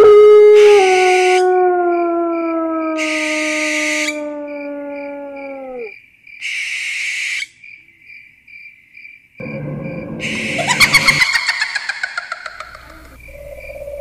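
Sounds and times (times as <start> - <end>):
canine howl: 0.0 - 5.9
cricket chirps: 0.0 - 14.0
sudden loud low noise: 9.4 - 14.0.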